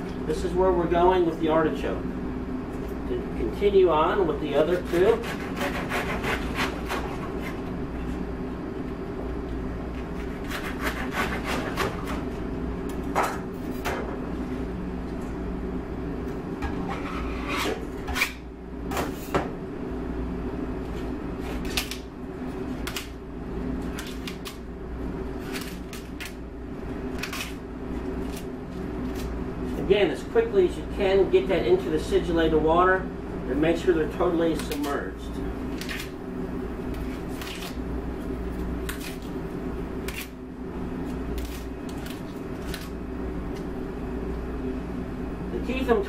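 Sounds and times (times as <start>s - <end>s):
knife sawing through leaves: 4.7s - 7.6s, 10.3s - 11.9s.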